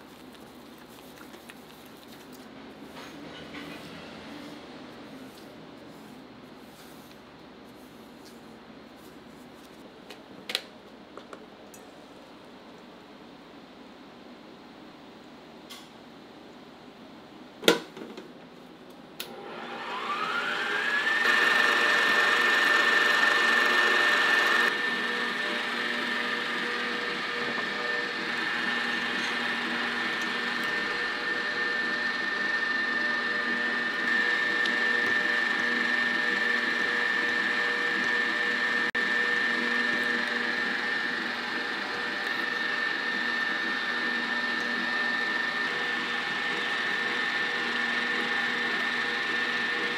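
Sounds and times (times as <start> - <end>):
electric mixer motor whining: 19.3 - 49.9.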